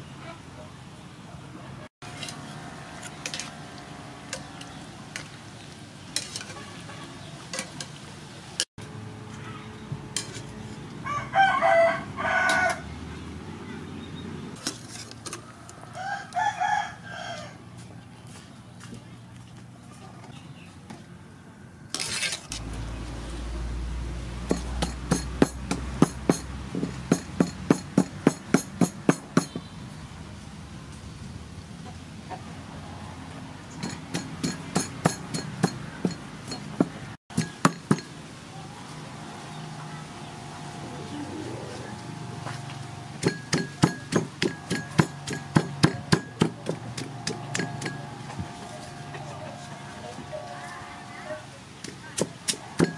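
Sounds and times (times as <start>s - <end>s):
pestle pounding in wooden mortar: 24.4s - 29.7s, 33.8s - 38.1s, 43.2s - 48.2s, 51.8s - 52.9s.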